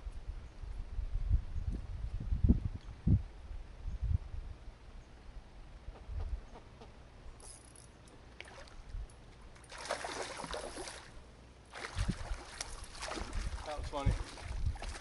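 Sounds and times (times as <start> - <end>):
fish splash at water surface: 9.7 - 11.1, 11.7 - 13.6.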